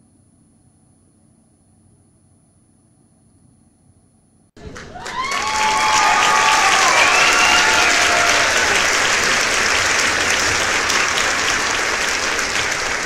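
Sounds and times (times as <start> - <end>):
crowd applause: 4.6 - 13.0.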